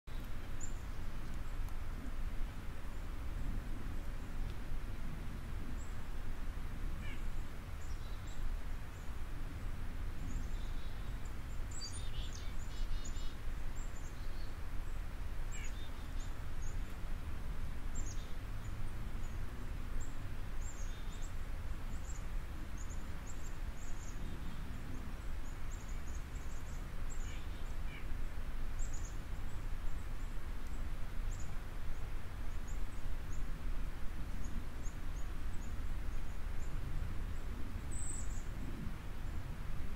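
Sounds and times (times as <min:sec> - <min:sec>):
low background noise: 0:00.1 - 0:39.9
faint bird chirps: 0:07.0 - 0:09.2, 0:10.2 - 0:17.0, 0:17.9 - 0:28.2, 0:34.4 - 0:38.7.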